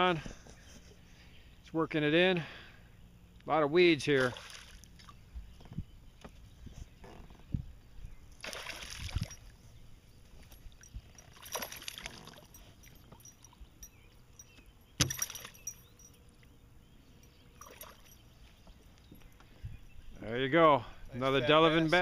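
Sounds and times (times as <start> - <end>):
fish splashing in water: 4.2 - 5.2, 8.4 - 9.5.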